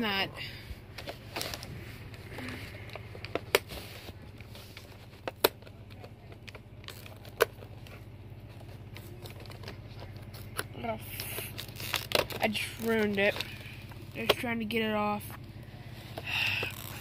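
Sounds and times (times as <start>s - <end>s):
low hum: 0.0s - 17.0s
plastic packaging crinkling: 8.5s - 14.3s.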